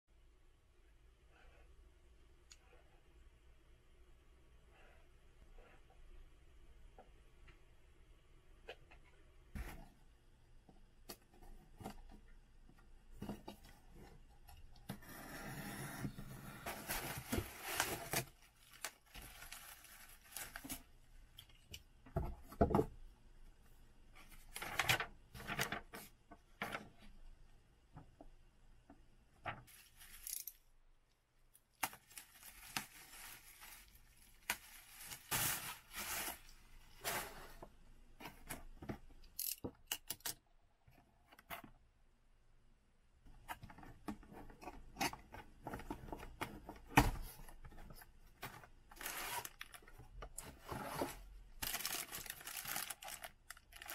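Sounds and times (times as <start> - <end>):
packaging rustling and scraping: 15.0 - 20.9, 29.6 - 30.6, 31.8 - 38.7, 43.6 - 53.9.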